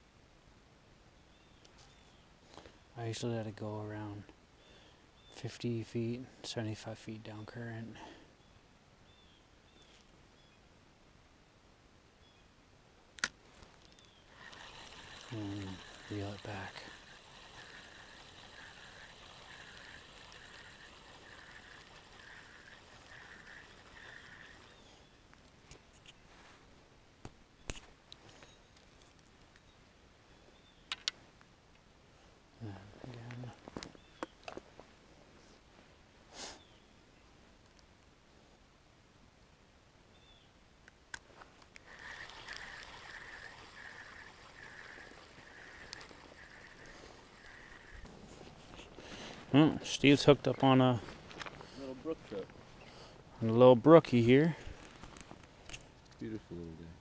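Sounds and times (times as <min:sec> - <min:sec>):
fishing reel clicks: 0:13.2 - 0:25.1, 0:41.8 - 0:48.1
fishing reel whirring: 0:13.9 - 0:25.2, 0:41.8 - 0:50.3.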